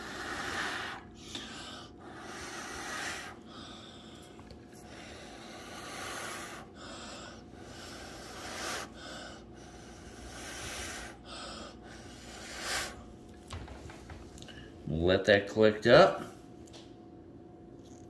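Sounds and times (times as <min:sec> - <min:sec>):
person blowing hard: 0:00.0 - 0:03.4, 0:05.6 - 0:09.2, 0:09.8 - 0:13.0.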